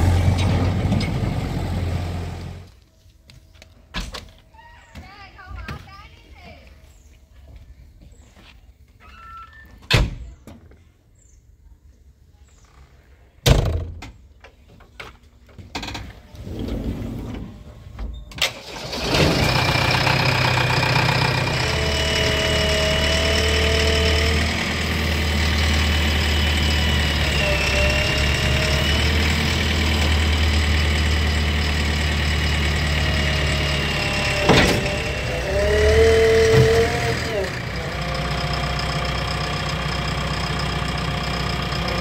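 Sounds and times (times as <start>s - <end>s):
diesel engine starting and running: 0.0s - 2.8s, 16.2s - 42.0s
hydraulic whine: 18.7s - 38.3s.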